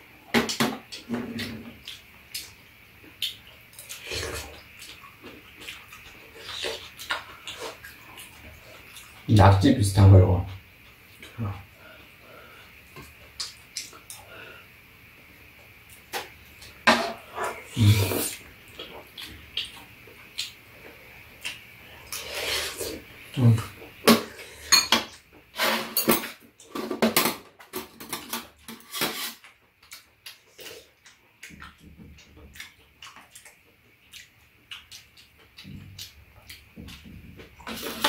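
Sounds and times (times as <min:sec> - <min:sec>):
utensils clinking on pan and bowls: 0:24.7 - 0:29.4.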